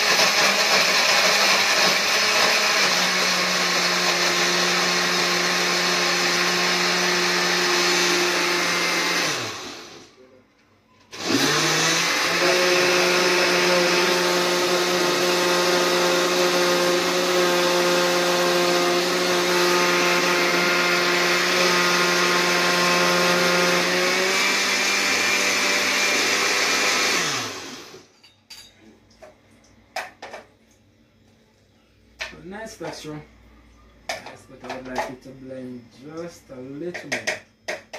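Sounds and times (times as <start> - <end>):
blender running: 0.0 - 10.1, 11.1 - 28.1.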